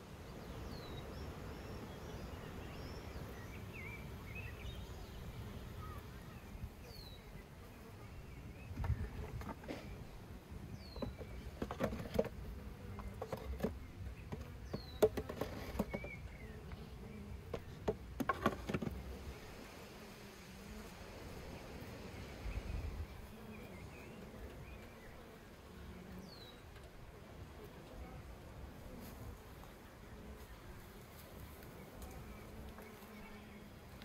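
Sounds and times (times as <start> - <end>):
honeybees buzzing: 0.0 - 34.0
wooden knocks and clatter: 10.9 - 12.4, 13.0 - 16.2, 17.5 - 19.0.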